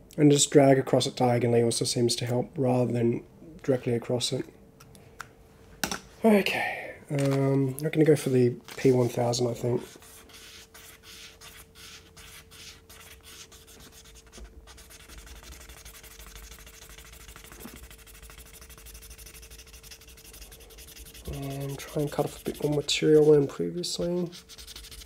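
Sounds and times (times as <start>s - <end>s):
faint sandpaper scratching: 8.2s - 25.0s.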